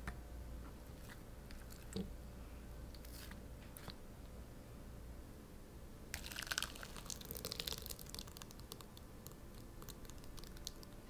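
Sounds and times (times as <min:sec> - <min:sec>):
thick puree pouring onto meat: 0:06.2 - 0:11.0.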